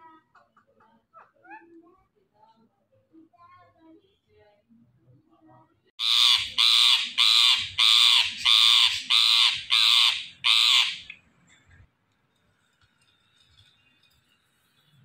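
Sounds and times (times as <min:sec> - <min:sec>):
parakeet screeching: 0:06.0 - 0:11.1.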